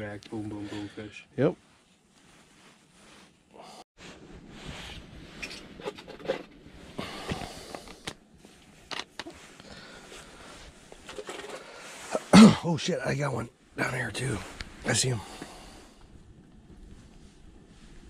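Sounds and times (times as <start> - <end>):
winter jackets rustling: 0.0 - 5.8, 6.6 - 12.8, 13.6 - 18.0.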